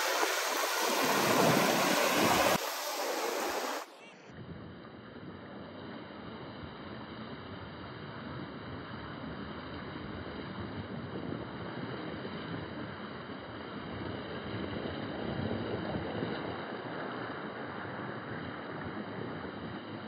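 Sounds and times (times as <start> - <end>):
ocean surf: 0.0 - 4.1
wind on microphone: 0.0 - 4.8.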